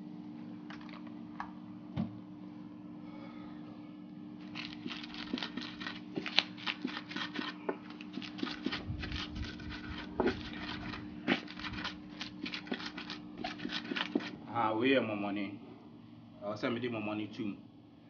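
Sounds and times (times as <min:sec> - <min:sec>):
pestle crunching in clay bowl: 0:04.4 - 0:14.4.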